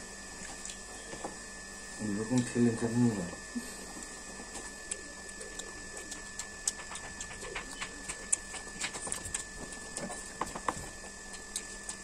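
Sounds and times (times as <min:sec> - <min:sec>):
faint steady high whine: 0:00.0 - 0:12.0
chewing and lip-smacking: 0:00.4 - 0:01.0, 0:03.8 - 0:12.0.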